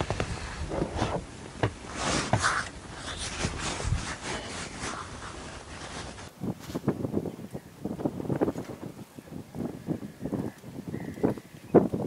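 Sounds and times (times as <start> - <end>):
rustling and rubbing: 0.0 - 7.1.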